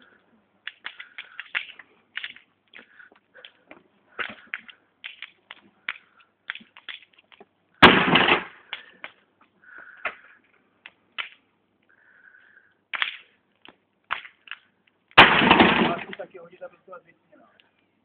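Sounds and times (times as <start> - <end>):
junk crashing onto ground: 7.8 - 8.6, 15.2 - 16.2.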